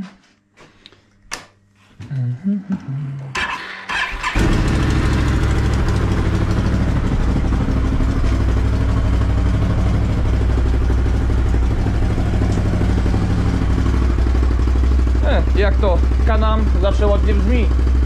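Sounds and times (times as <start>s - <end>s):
engine starting and idling: 3.4s - 17.6s.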